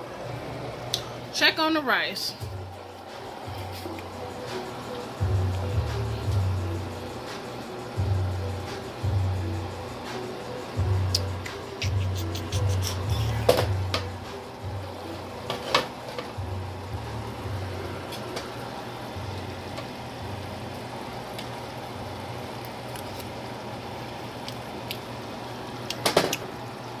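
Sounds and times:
low hum: 2.4 - 15.4, 16.4 - 21.0.

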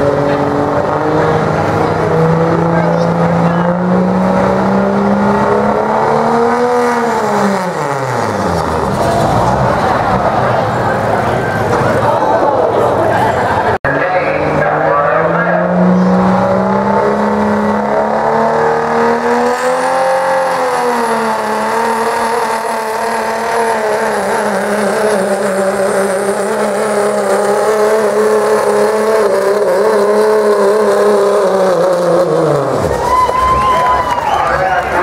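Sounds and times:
diesel engine at full throttle: 0.0 - 35.0.

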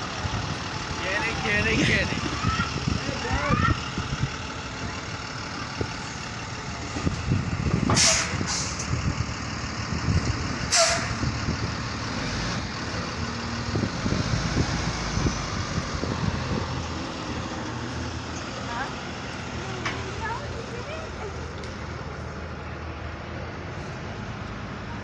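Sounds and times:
bus engine idling: 0.0 - 25.0
air brake hisses: 7.9 - 8.8, 10.7 - 11.2.

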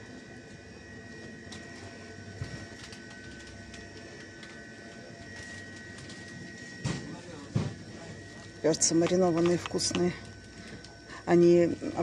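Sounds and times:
faint high whines: 0.0 - 12.0
refrigerated display cases humming: 0.0 - 12.0.

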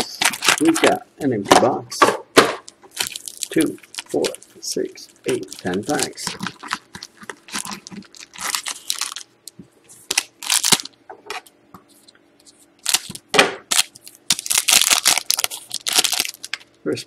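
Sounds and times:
foil wrappers crinkling: 0.0 - 1.0, 2.6 - 11.0, 12.8 - 16.8
scissors cutting foil pack: 0.0 - 1.0, 5.3 - 9.2.

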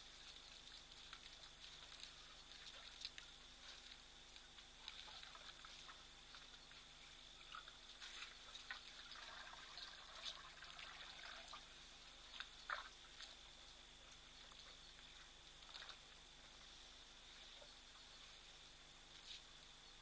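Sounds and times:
water splashing and trickling: 0.0 - 16.4.

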